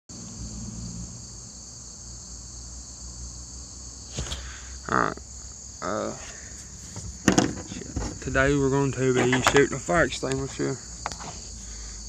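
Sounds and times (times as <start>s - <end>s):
insects buzzing: 0.1s - 12.0s
short vocal sound: 4.2s - 5.2s.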